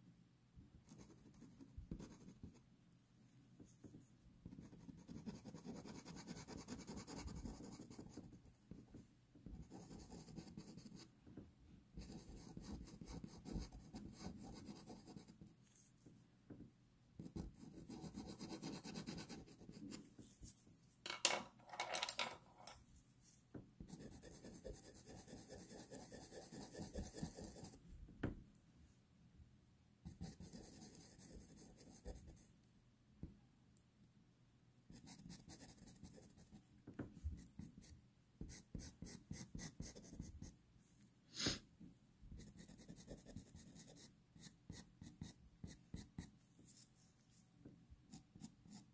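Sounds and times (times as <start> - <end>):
pencils scratching on paper: 4.5 - 8.4, 9.5 - 11.1, 12.0 - 15.9, 17.2 - 20.6, 23.8 - 27.8, 30.1 - 32.5, 42.4 - 47.1.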